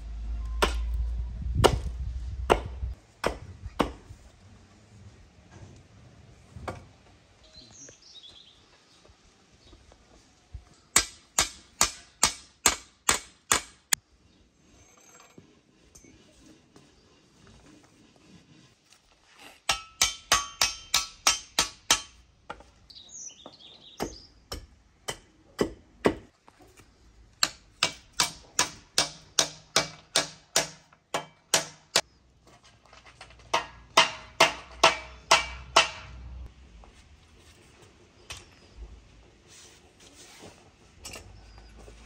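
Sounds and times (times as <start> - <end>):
hammer striking metal blade: 19.7 - 22.2.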